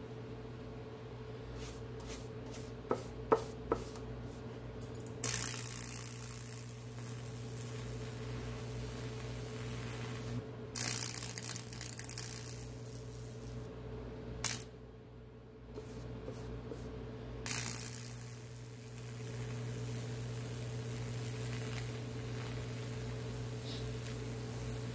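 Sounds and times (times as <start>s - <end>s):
steady electrical hum: 0.0s - 24.9s
electric arc crackling: 5.1s - 13.7s, 14.4s - 14.7s, 17.4s - 24.9s
sharp electric crack: 5.2s - 13.6s, 14.4s - 14.7s, 17.5s - 24.9s.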